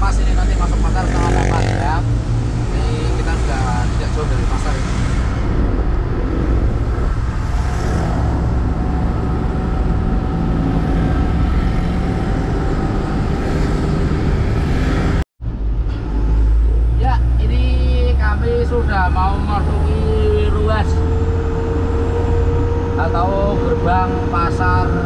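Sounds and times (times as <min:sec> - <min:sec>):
road noise: 0:00.0 - 0:25.0.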